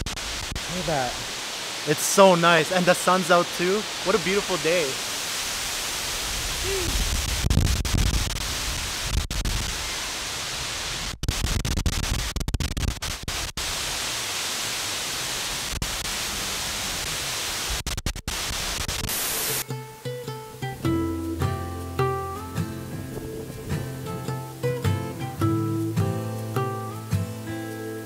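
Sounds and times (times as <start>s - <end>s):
waterfall hissing: 0.0s - 11.1s, 13.4s - 28.0s
deep rumble: 21.4s - 24.6s.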